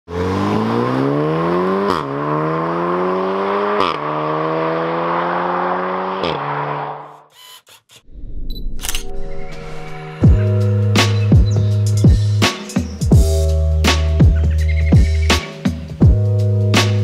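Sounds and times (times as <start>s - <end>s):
car engine accelerating hard: 0.1s - 7.2s.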